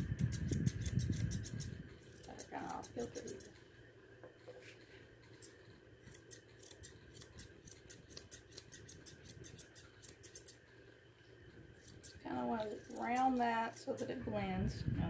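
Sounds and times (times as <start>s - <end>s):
shears snipping hair: 0.0s - 3.6s, 5.3s - 10.6s, 11.8s - 14.4s.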